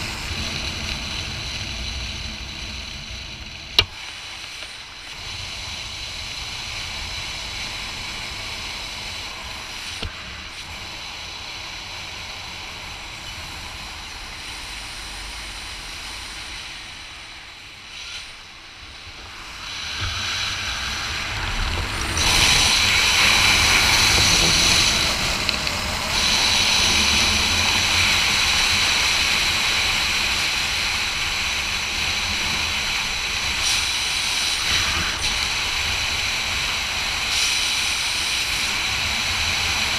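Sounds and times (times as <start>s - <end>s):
wind noise on microphone: 18.8s - 39.9s.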